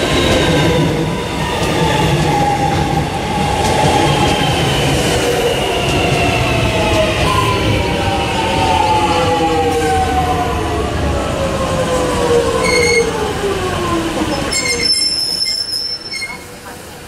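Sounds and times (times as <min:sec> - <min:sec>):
rumble of train wheels: 0:00.0 - 0:17.0
high-pitched wheel squeals: 0:12.6 - 0:13.2, 0:14.5 - 0:16.5.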